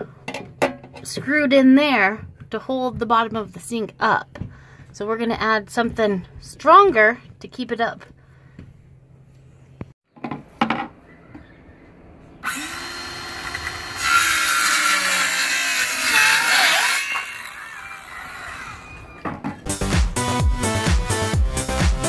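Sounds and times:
circular saw cutting wood: 0:12.4 - 0:19.2.

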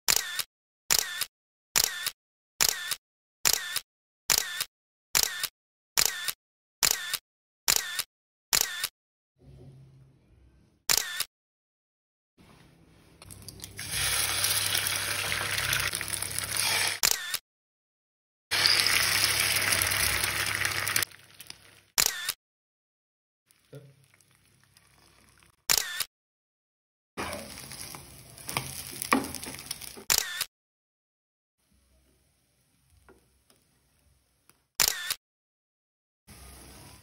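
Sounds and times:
camera shutter sound effect: 0:00.1 - 0:08.9, 0:10.9 - 0:11.3, 0:16.6 - 0:17.4, 0:22.0 - 0:22.4, 0:25.7 - 0:26.1, 0:30.0 - 0:30.5, 0:34.8 - 0:35.2
egg sizzling in a pan: 0:13.4 - 0:17.0, 0:18.5 - 0:21.9, 0:27.4 - 0:30.0.

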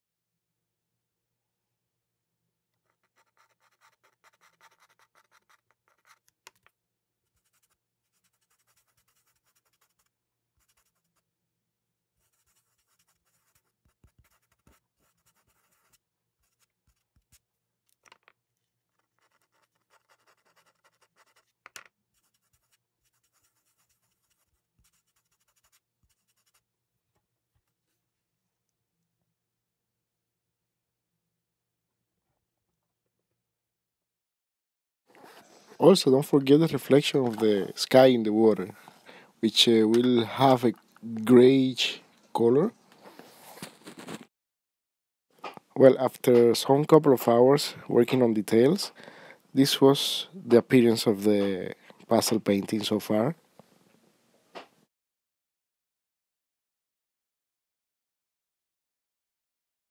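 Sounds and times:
fingertips rubbing paper: 0:02.8 - 0:06.4, 0:07.3 - 0:11.2, 0:12.2 - 0:17.5, 0:18.9 - 0:26.6
pastel stick scratching on paper: 0:02.8 - 0:06.6, 0:07.2 - 0:11.3, 0:12.2 - 0:17.5, 0:18.9 - 0:26.7.

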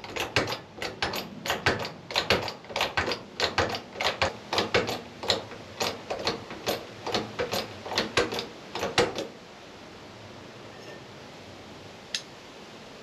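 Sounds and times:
bottle jack pumping clicks: 0:00.0 - 0:09.3.

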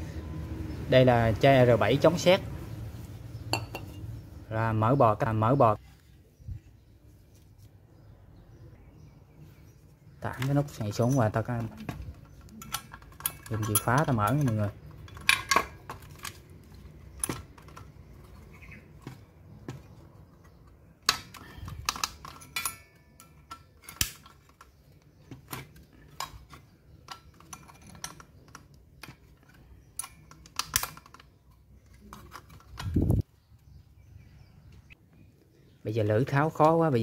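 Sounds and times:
metal saw body handled: 0:10.4 - 0:19.2, 0:20.7 - 0:33.2.

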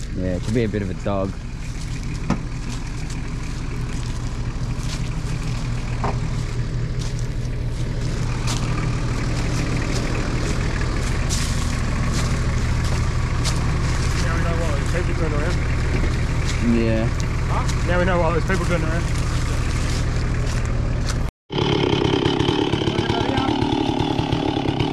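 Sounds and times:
diesel engine running: 0:00.0 - 0:24.9.

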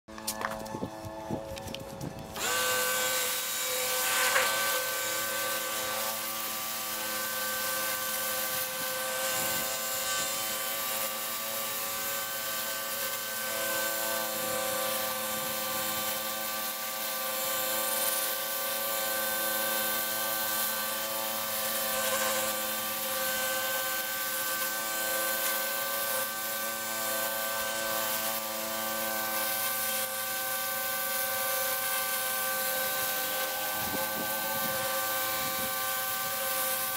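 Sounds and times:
pressure washer motor whine: 0:00.1 - 0:36.9
water jet hissing on driveway: 0:15.0 - 0:36.9.

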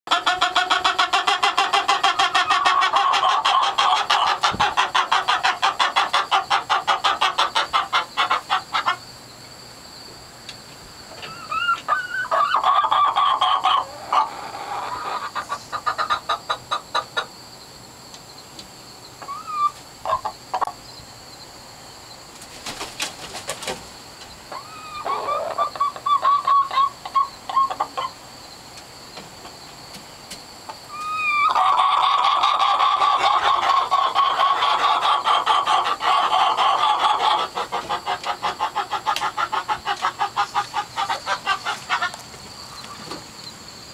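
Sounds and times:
hens cackling: 0:00.1 - 0:09.2, 0:11.1 - 0:17.4, 0:19.2 - 0:20.8, 0:22.5 - 0:29.6, 0:30.7 - 0:43.3.

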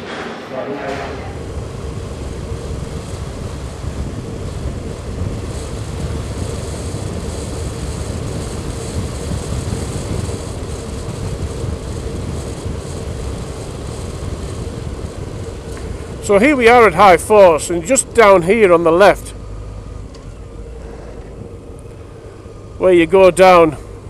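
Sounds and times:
motorcycle engine drone: 0:00.0 - 0:24.0
wind and road rush: 0:00.0 - 0:24.0.

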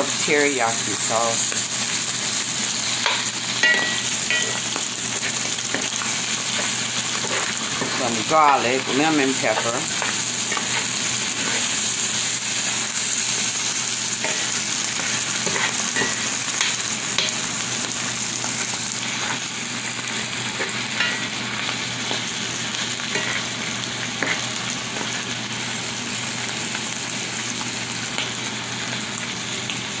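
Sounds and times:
food sizzling in a skillet: 0:00.0 - 0:30.0
metal spoon scraping a pan: 0:03.0 - 0:12.3, 0:14.2 - 0:17.4, 0:20.1 - 0:21.4, 0:23.0 - 0:23.5, 0:24.2 - 0:25.2.

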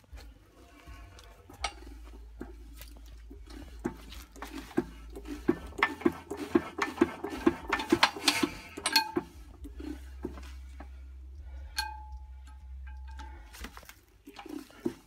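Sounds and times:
engine cranked by hand clattering: 0:01.0 - 0:15.0
metallic clink: 0:11.7 - 0:13.5.

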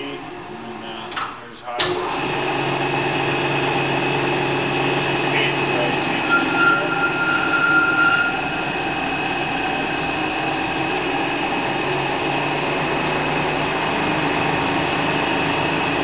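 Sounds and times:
lathe motor whirring: 0:00.0 - 0:01.2, 0:01.8 - 0:16.0
higher tone: 0:04.8 - 0:12.4.

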